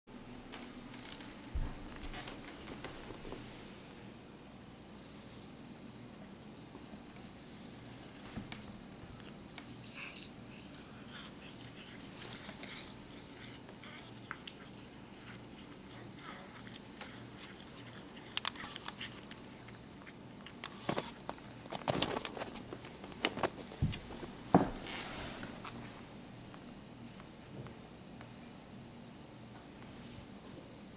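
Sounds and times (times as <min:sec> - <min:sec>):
rustles: 0:07.1 - 0:26.1
cat chewing grass: 0:08.6 - 0:24.4.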